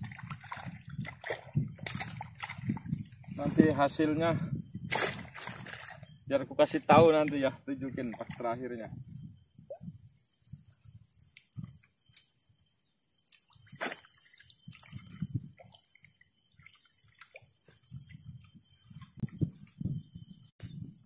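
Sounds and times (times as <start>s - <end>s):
water sloshing and dripping: 0.0s - 3.7s, 4.3s - 6.2s, 6.8s - 8.8s, 13.3s - 19.4s.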